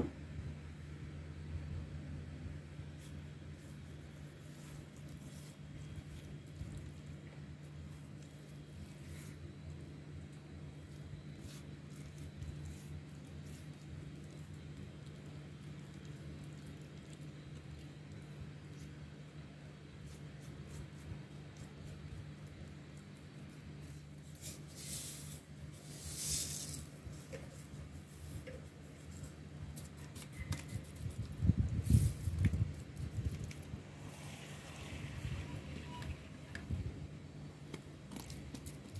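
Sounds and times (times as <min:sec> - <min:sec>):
fingers squishing wet dough: 0:02.9 - 0:24.7, 0:26.8 - 0:33.8
soft rustling hisses: 0:23.5 - 0:36.5.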